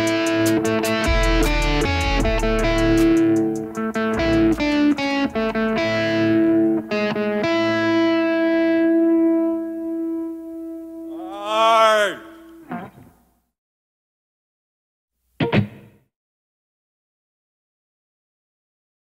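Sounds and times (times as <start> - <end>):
distorted electric guitar: 0.0 - 10.3.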